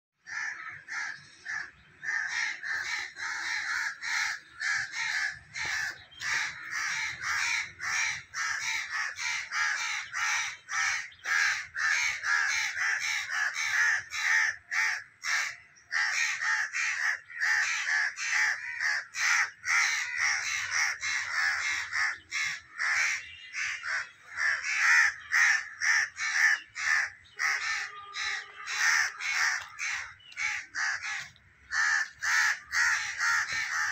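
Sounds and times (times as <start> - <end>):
flock of birds calling harshly: 0.2 - 33.9.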